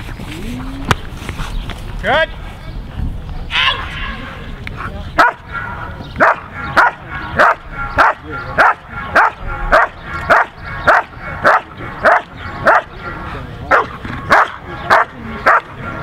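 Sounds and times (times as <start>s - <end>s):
dog barking rhythmically: 5.2s - 13.0s, 13.7s - 16.0s.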